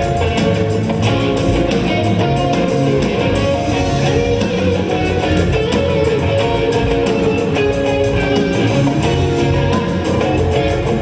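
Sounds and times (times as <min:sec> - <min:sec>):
electric guitar: 0:00.0 - 0:11.0
rock band playing: 0:00.0 - 0:11.0.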